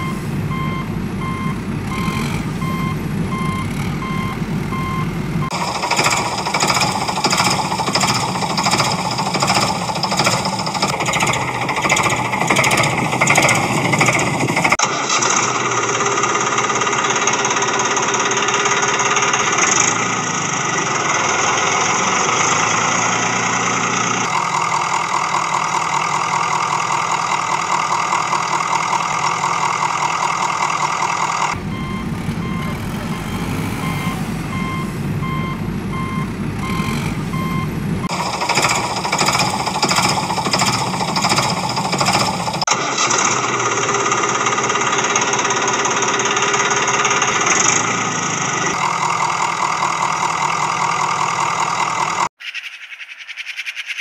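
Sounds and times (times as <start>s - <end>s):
reversing alarm beeping: 0.0s - 14.8s, 31.2s - 42.6s
vehicle engine revving: 0.0s - 52.3s.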